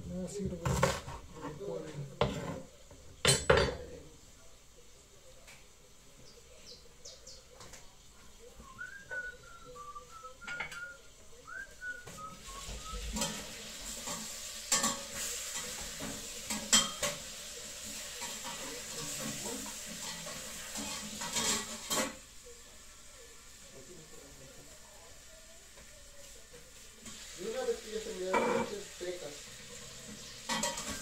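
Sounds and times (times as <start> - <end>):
food sizzling in a pan: 0.0 - 31.0
metal utensil clinking on pan: 3.2 - 3.9, 13.1 - 17.3, 18.1 - 22.2, 30.4 - 31.0.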